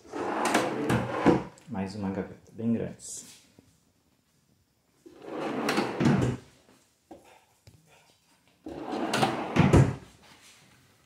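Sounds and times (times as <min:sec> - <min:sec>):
drawers sliding on metal runners: 0:00.1 - 0:01.5, 0:05.1 - 0:06.4, 0:08.7 - 0:10.0.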